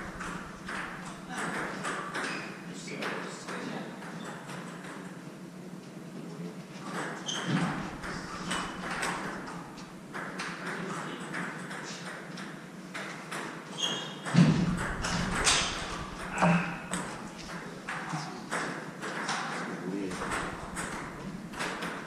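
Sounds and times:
sneakers squeaking on wooden floor: 7.1s - 10.0s, 13.7s - 18.1s.

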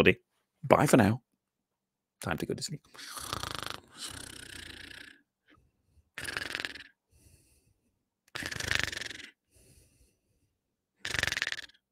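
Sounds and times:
person mock snoring: 3.0s - 5.2s, 6.2s - 7.0s, 8.3s - 9.4s, 11.0s - 11.8s.

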